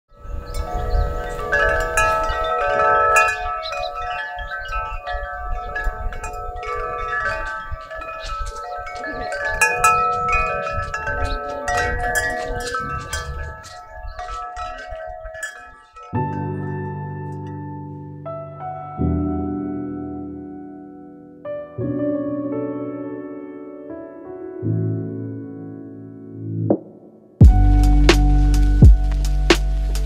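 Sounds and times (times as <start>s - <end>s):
metal tube wind chime ringing: 0.2s - 17.6s.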